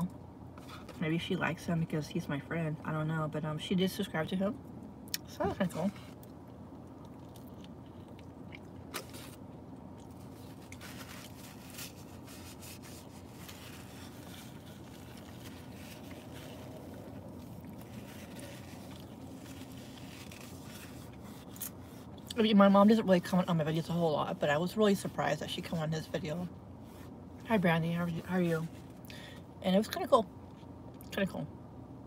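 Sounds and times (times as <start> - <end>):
steady low hum: 0.0 - 32.0
person chewing food: 5.1 - 12.3, 13.0 - 22.3.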